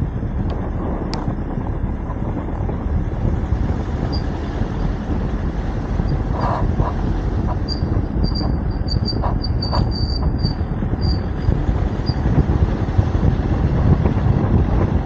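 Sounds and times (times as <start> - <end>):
low rumble of road and engine: 0.0 - 15.0
wind buffeting microphone: 0.0 - 15.0
short high squeaks: 7.5 - 12.2.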